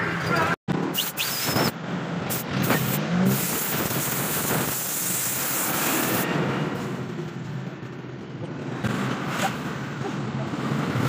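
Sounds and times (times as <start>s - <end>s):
compressed air hissing from hose: 1.0s - 1.7s, 2.3s - 6.2s.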